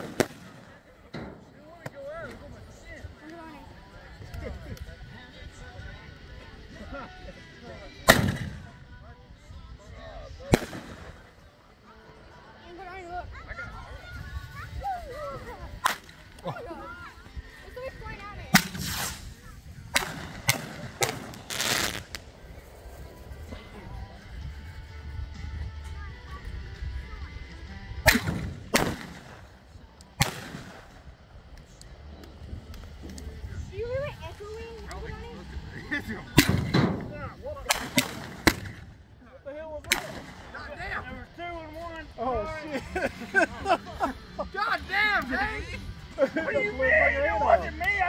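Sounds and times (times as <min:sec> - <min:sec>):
fireworks bangs: 0:00.0 - 0:00.8, 0:18.5 - 0:22.3
fireworks crackling: 0:00.0 - 0:01.1, 0:08.0 - 0:08.8, 0:10.5 - 0:11.5, 0:14.9 - 0:16.5, 0:17.4 - 0:23.8, 0:28.0 - 0:39.2, 0:39.8 - 0:42.2
firework hiss: 0:10.5 - 0:11.4, 0:18.5 - 0:23.8, 0:28.0 - 0:31.5, 0:36.3 - 0:39.0.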